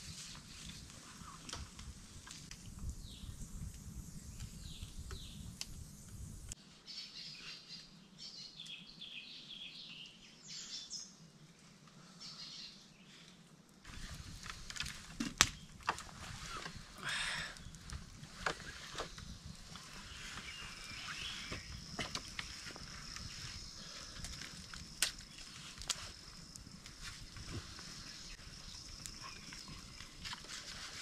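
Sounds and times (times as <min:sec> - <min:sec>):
campfire wood snapping: 0:00.3 - 0:06.6, 0:13.7 - 0:31.0
small birds chirping: 0:02.8 - 0:11.2, 0:16.4 - 0:31.0.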